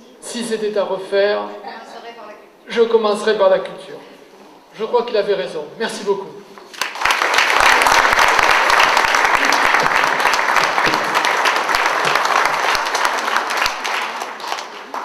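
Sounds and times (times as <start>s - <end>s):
audience applauding: 6.7s - 15.0s.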